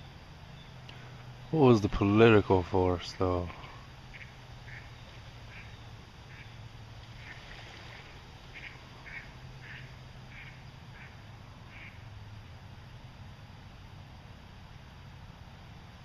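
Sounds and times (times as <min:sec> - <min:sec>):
low steady hum: 0:00.0 - 0:16.0
duck quacking: 0:04.1 - 0:04.9, 0:05.5 - 0:05.7, 0:06.3 - 0:06.5, 0:08.5 - 0:12.0.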